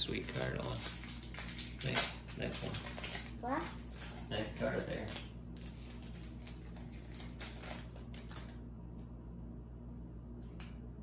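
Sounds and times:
trading cards rustling and clicking: 0:00.1 - 0:08.7.

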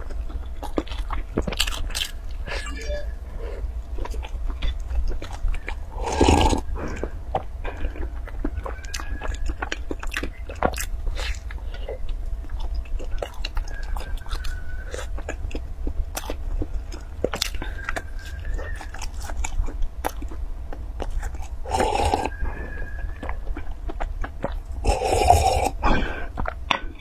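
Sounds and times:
chewing crisp pastry: 0:00.0 - 0:26.7
wet mouth sounds: 0:21.0 - 0:26.6.

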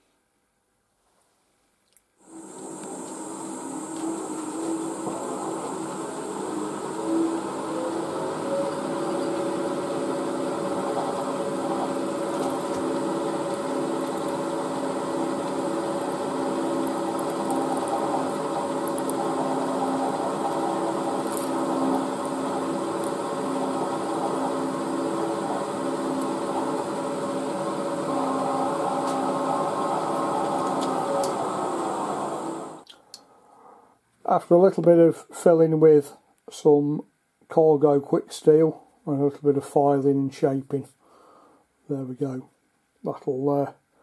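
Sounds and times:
drill spindle drilling metal: 0:02.3 - 0:32.8.

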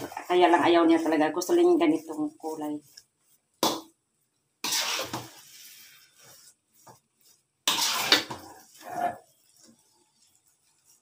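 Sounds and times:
metal spatula scraping a wok: 0:04.6 - 0:06.4, 0:07.6 - 0:11.0.

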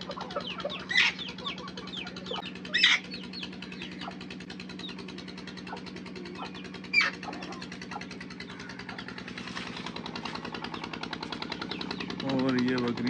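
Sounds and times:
engine-like hum: 0:00.0 - 0:13.0
sharp loud bird call: 0:00.4 - 0:04.2, 0:05.6 - 0:09.1.

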